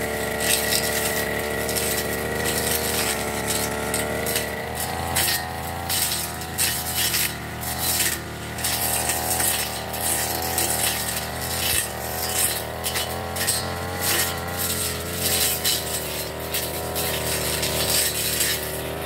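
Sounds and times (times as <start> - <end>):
brush cutter engine running: 0.0 - 19.0
cutting head cutting grass: 0.0 - 19.0.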